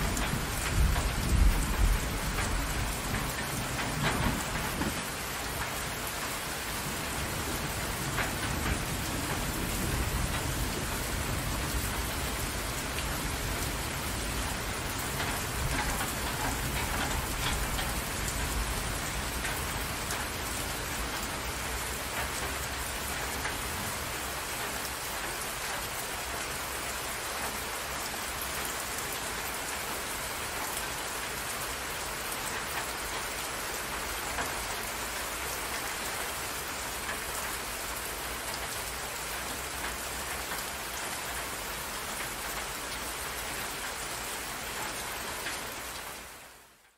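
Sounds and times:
distant thunder rumbling: 0.0 - 5.9, 6.7 - 24.1
heavy rain on water: 0.0 - 46.9.

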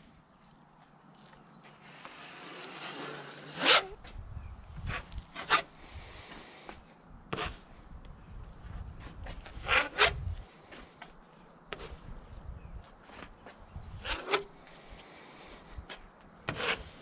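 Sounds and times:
plastic spreader scraping: 1.7 - 4.0, 14.0 - 14.6, 16.5 - 17.0.

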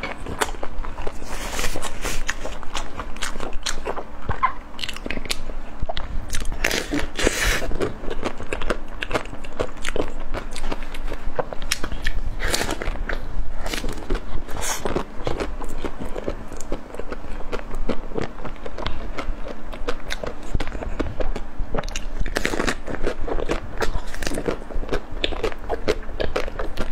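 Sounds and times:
chewing with wet mouth clicks: 14.0 - 26.9.

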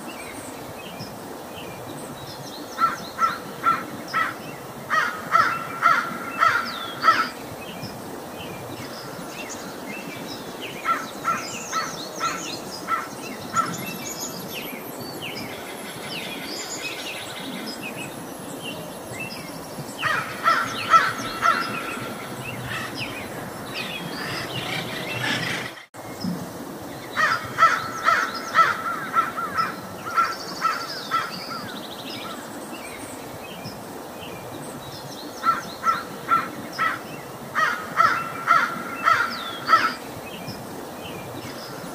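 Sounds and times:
steady outdoor hiss: 0.0 - 41.9
crows cawing: 2.8 - 7.3, 20.0 - 23.0, 27.2 - 31.3, 37.6 - 40.0
small birds chirping: 16.7 - 26.0.

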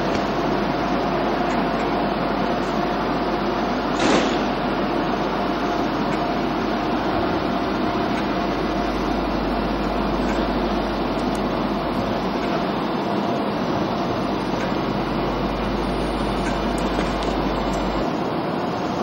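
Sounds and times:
electric train humming: 0.0 - 19.0
short hiss: 4.0 - 4.5.

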